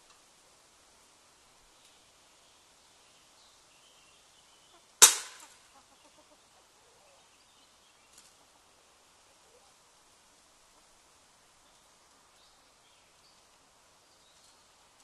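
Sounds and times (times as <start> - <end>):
trap snapping shut: 5.0 - 5.6.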